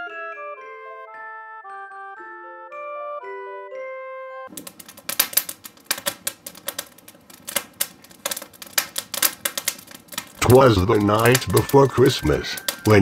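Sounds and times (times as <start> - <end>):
logs crackling and popping: 4.5 - 13.0.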